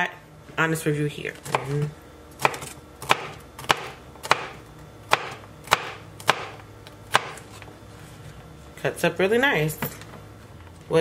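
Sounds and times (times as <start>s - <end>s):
knife chopping on plastic board: 2.4s - 7.4s.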